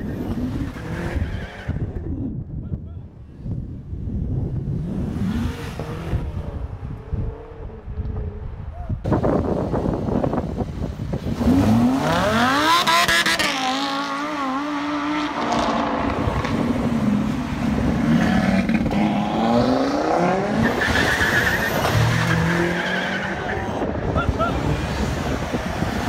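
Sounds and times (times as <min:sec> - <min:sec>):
car engine accelerating hard: 0:11.1 - 0:21.2.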